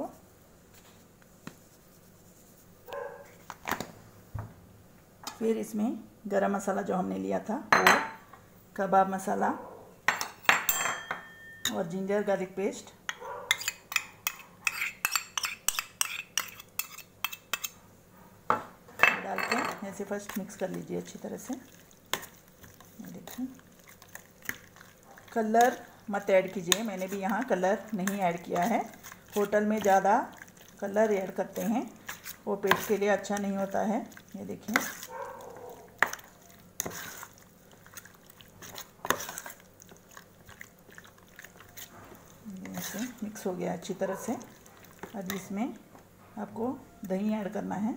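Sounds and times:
metal spoon clinking on steel bowl: 10.1 - 11.9, 13.1 - 17.7
spoon stirring wet marinade: 13.1 - 17.8, 19.6 - 47.7.

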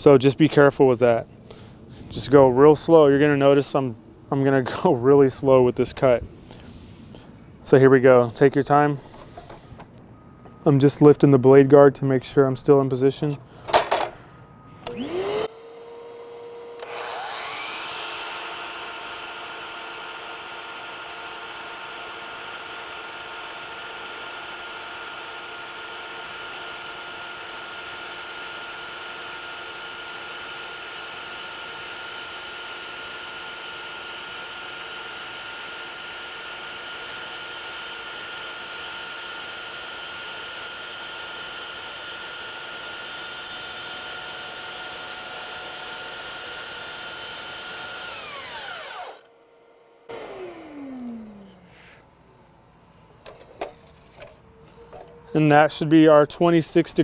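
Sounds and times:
miter saw motor whining: 14.2 - 52.2.

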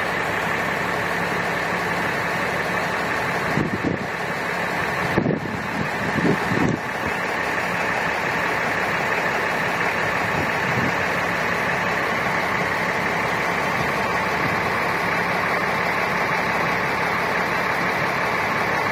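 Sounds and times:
diesel engine idling: 0.0 - 18.9.

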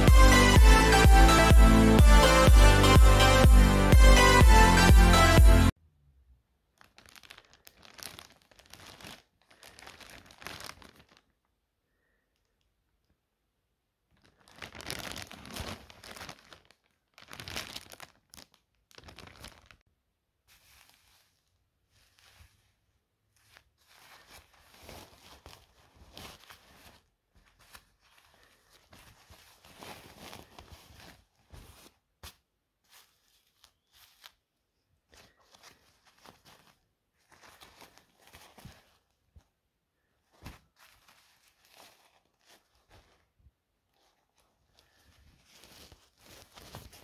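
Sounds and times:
electronic dance music: 0.0 - 5.7
plastic wrapping crinkling: 6.6 - 11.5, 14.1 - 47.0.

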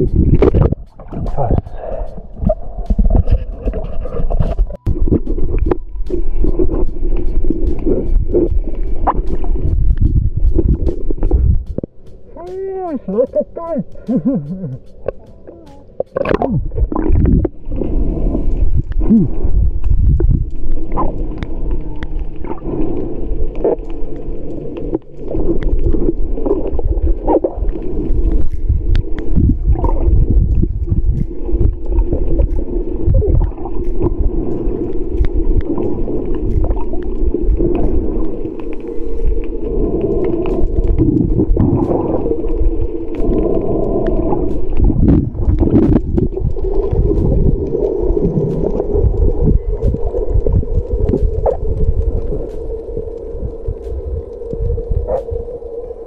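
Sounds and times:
bubbling: 0.0 - 56.0
underwater water rumble: 0.0 - 56.0.

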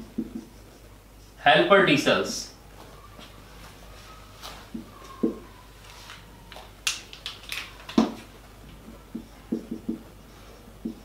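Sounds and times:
marker tapping on whiteboard: 0.0 - 0.5, 4.7 - 5.4, 9.1 - 10.1, 10.8 - 11.0.

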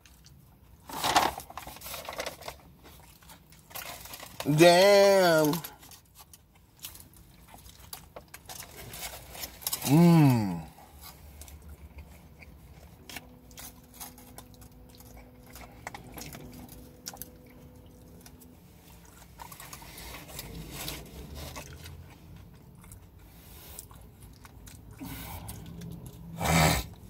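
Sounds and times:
faint steady hum: 0.0 - 27.0
person chewing and biting food: 5.8 - 27.0.

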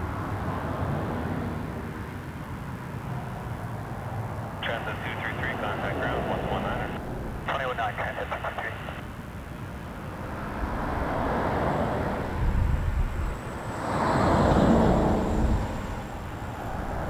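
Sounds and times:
jet engines rushing and rumbling: 0.0 - 17.0
thin high whine: 4.6 - 17.0.

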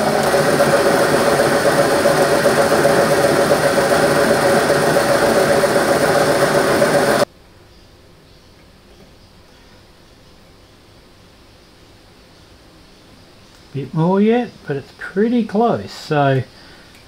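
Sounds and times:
metal lathe whirring: 0.0 - 7.3.

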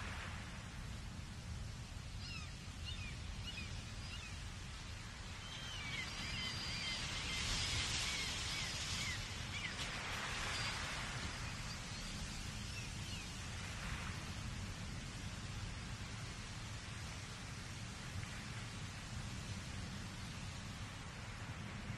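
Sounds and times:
ocean surf against cliffs: 5.8 - 21.9.

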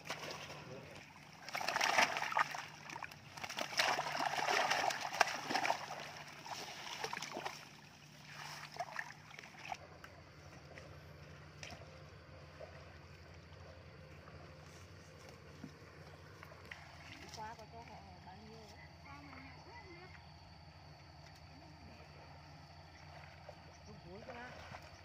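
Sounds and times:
fish thrashing and splashing: 0.0 - 10.2
faint low hum: 0.0 - 25.0.

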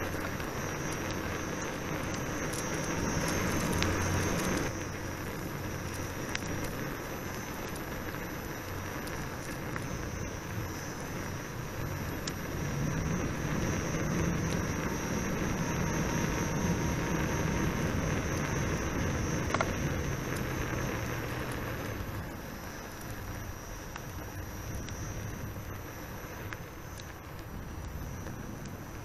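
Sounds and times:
wind on microphone: 0.0 - 29.0.

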